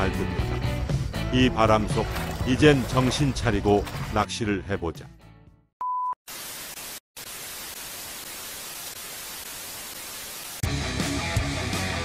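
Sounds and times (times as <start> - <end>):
tv static hiss: 6.3 - 10.6.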